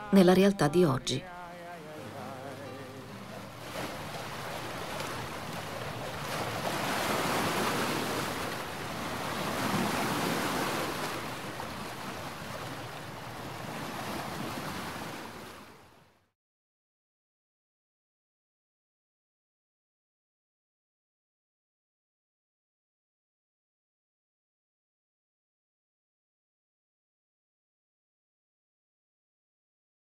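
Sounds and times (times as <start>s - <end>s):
waves breaking: 0.0s - 16.2s.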